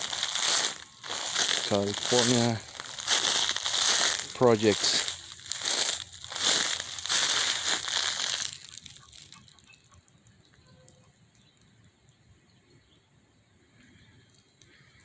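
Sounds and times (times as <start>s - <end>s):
footsteps crunching through dry leaves: 0.0s - 9.6s
faint outdoor background: 0.0s - 15.0s.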